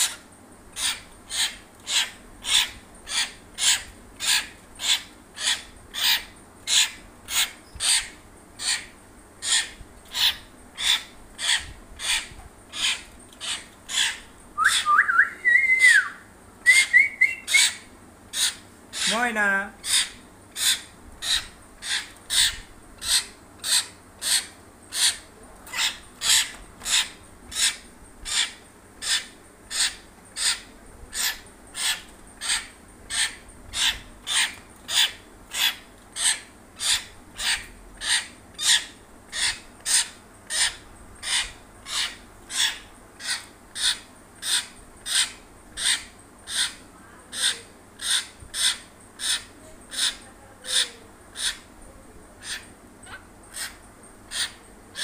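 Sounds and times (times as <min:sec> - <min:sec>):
myna harsh rasping call: 0:17.5 - 0:51.7.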